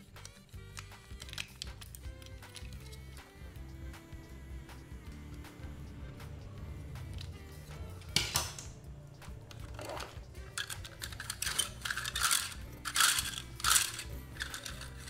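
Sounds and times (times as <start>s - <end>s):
plastic toys clattering in a box: 9.5s - 15.0s.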